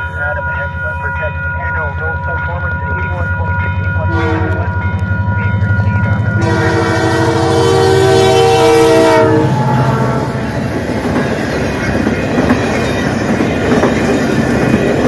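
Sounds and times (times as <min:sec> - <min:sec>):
diesel engine throbbing: 0:02.0 - 0:13.8
locomotive horn blast: 0:04.1 - 0:04.8, 0:06.2 - 0:10.7.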